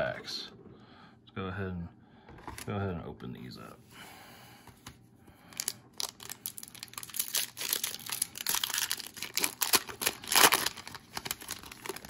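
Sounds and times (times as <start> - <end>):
foil wrapper tearing and crinkling: 5.6 - 12.0.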